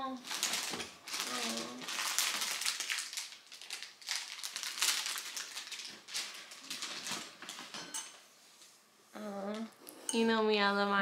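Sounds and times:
gift wrapping crinkling and rustling: 0.2 - 7.9.

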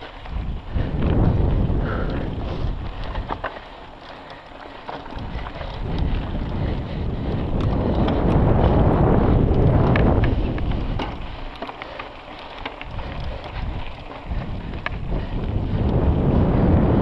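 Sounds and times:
bike clicks and rattles: 0.0 - 17.0
wind rushing over microphone: 0.0 - 17.0.

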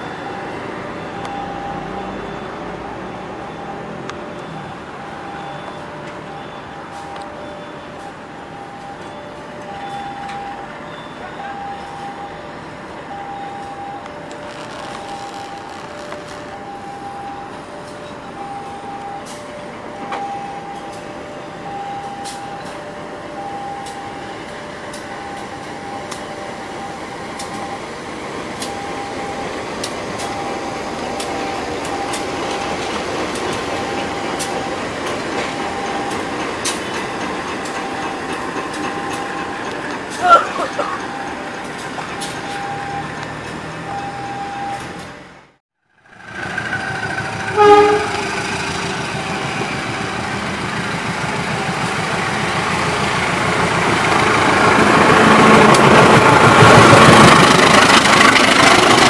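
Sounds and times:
two-tone crossing bell: 0.0 - 43.3
train wheels clicking on rails: 11.5 - 45.3, 46.0 - 59.0.

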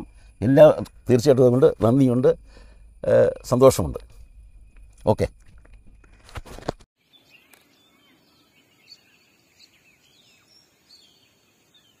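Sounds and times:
quiet outdoor background noise: 0.0 - 12.0
faint birds chirping: 7.0 - 12.0.

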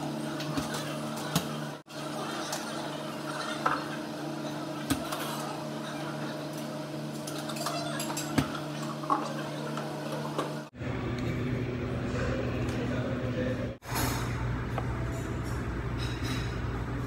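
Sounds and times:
steady machine hum: 0.0 - 17.0
cups and utensils clinking: 7.2 - 10.6.

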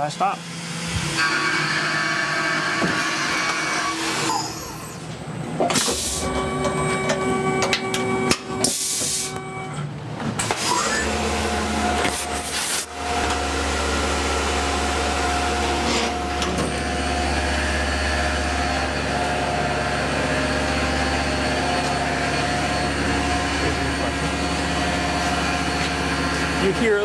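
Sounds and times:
milling machine whine: 0.4 - 9.8, 10.4 - 27.0
spindle hum: 5.9 - 9.8, 10.8 - 26.8.

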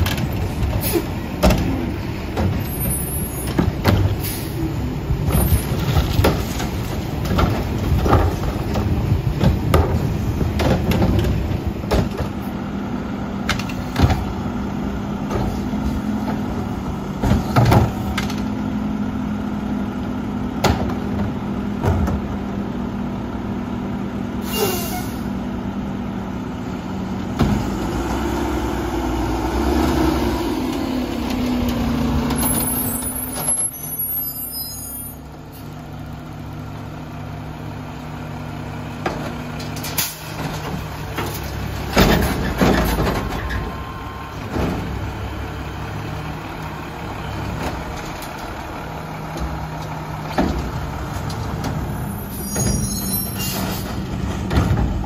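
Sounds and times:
diesel engine running: 0.0 - 55.0
garbage cart knocking and banging: 5.2 - 12.4, 40.4 - 43.7, 54.2 - 55.0
air brake hiss: 24.4 - 25.3.

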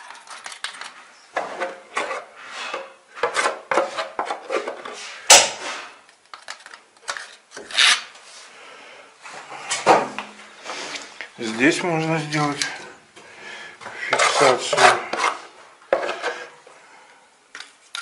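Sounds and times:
spatula scraping plaster: 14.0 - 16.6.

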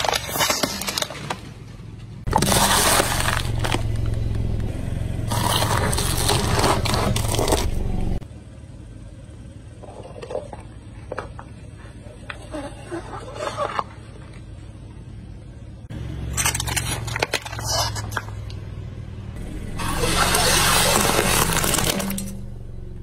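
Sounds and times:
tyre cracking paper cups: 0.0 - 1.5
low hum: 0.0 - 23.0
tyre crushing corn cob: 2.3 - 4.7, 5.3 - 7.8.

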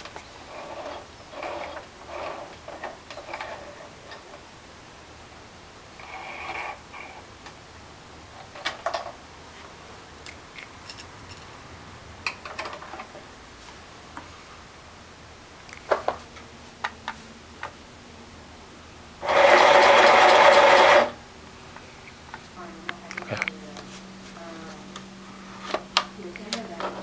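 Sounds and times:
sewing machine motor running: 19.2 - 21.2.

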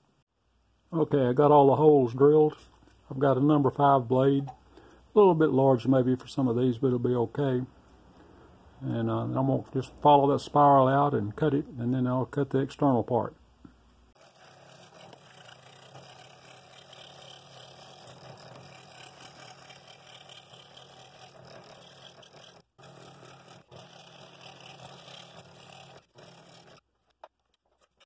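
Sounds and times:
scroll saw cutting wood: 14.2 - 26.8.

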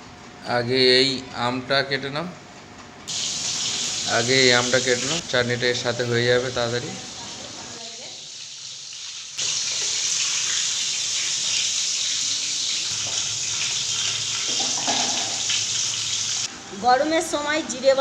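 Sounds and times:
fish frying in hot oil: 3.1 - 5.2, 6.4 - 16.5.

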